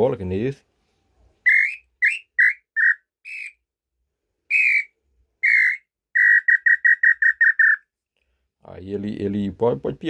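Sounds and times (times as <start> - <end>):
whistled bird call notes: 1.5 - 3.6, 4.5 - 7.8.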